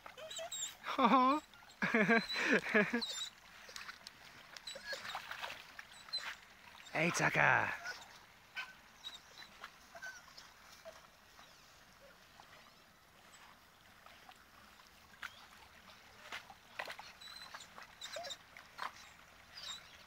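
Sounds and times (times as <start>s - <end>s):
dog whining: 0.0s - 3.3s, 4.7s - 5.2s, 17.3s - 19.0s
dog paddling in water: 0.0s - 20.0s.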